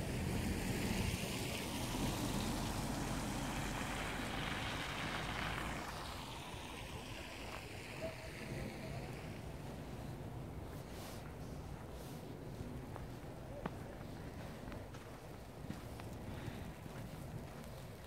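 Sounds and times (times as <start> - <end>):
car driving past on snow: 0.0 - 9.4.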